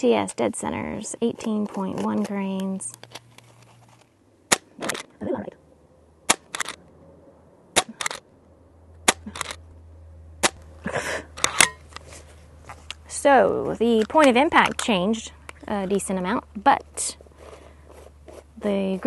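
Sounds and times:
air rifle shots cracking: 4.5 - 5.1, 6.3 - 6.8.

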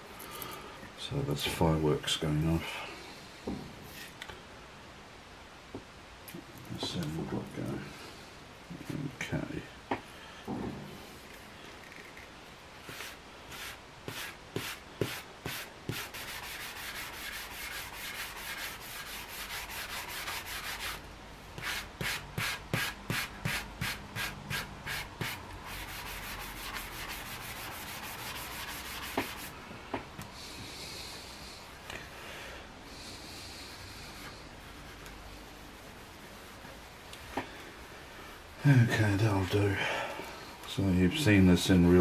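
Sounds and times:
hand-sanding wood: 12.8 - 21.0, 21.6 - 29.6.

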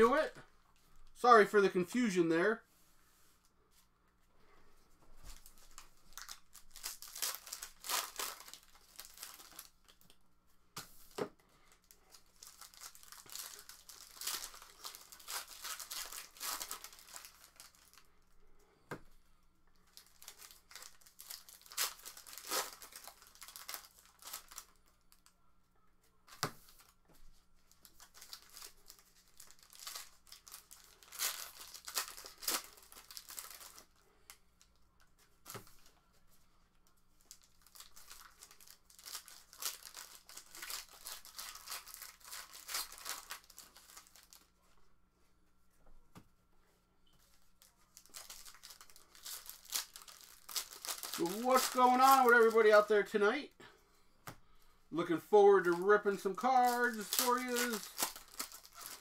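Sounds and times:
wrappers tearing and crinkling: 5.2 - 10.2, 11.0 - 18.1, 19.8 - 25.3, 27.6 - 34.1, 37.2 - 44.6, 47.3 - 53.2, 55.5 - 59.0.

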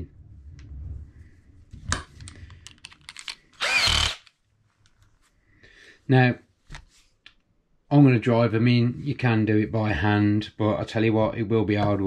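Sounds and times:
cordless drill whirring: 3.6 - 4.3.

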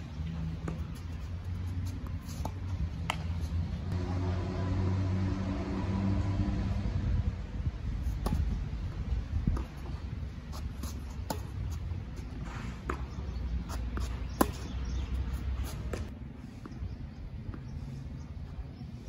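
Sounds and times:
tennis ball struck by rackets: 2.4 - 3.4, 8.2 - 16.1.

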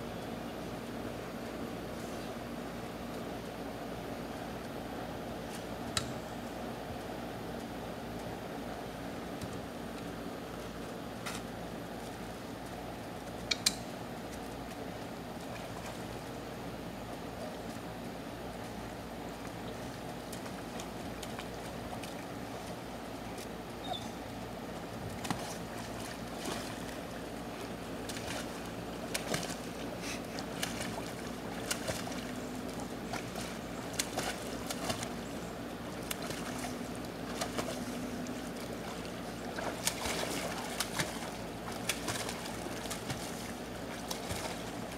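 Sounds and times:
steady low hum: 0.0 - 44.9
dog splashing in water: 25.2 - 35.3, 36.0 - 44.9.

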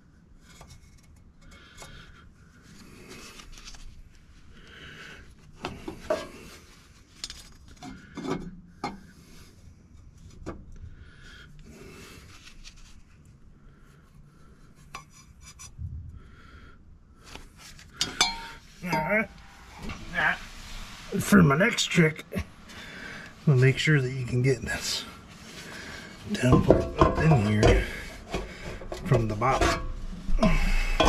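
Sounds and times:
metal tubing scraping: 17.6 - 31.0
metal knocks and clanks: 26.4 - 31.0.

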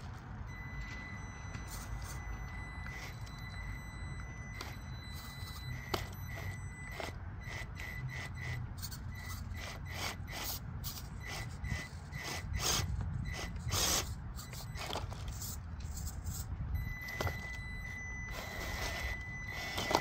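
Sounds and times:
rc car scraping against rock: 5.2 - 16.5, 18.3 - 20.0.

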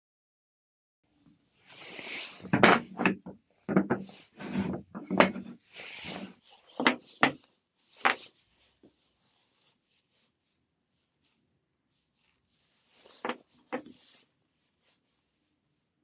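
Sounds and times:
wooden slats scraping on board: 2.4 - 7.4, 13.0 - 14.0
wood knocking on wood: 2.5 - 4.0.

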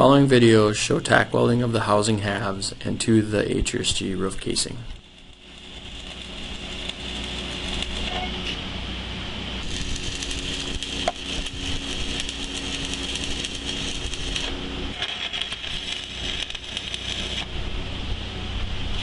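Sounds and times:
steady low hum: 0.0 - 19.0
crackling welding arc: 3.1 - 8.6, 9.6 - 17.6.

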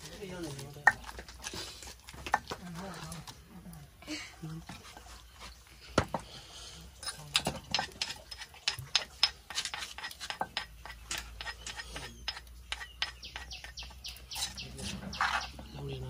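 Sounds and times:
wood fire crackling: 7.2 - 15.4.

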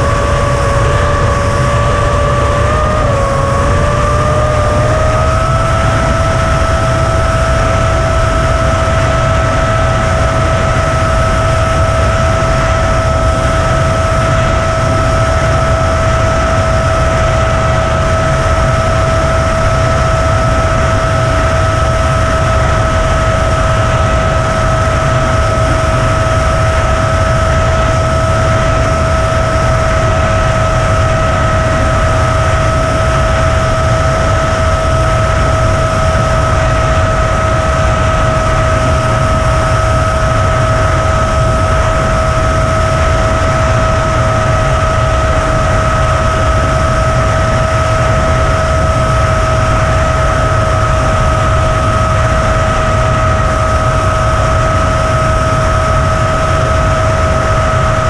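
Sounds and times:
drone motors whining: 0.0 - 58.0.

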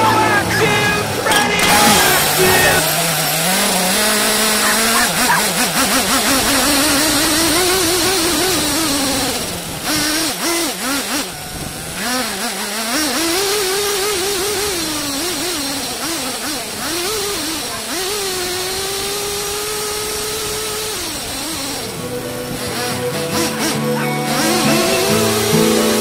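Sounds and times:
small engine revving: 0.0 - 26.0
rush of wind and dirt: 3.2 - 12.8.

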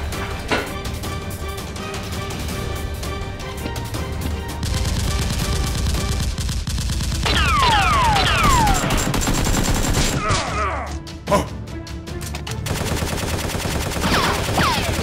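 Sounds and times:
machine-gun fire in rapid bursts: 4.6 - 10.4, 12.6 - 15.0.

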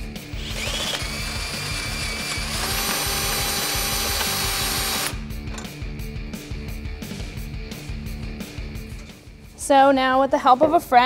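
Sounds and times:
background music: 0.0 - 11.0
drill motor whining into steel: 0.3 - 5.3.

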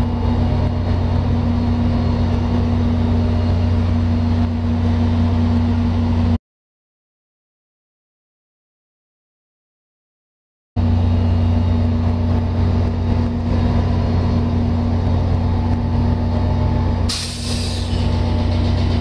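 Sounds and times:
diesel locomotives idling: 0.0 - 6.4, 10.8 - 19.0
air release hiss: 17.1 - 18.8.

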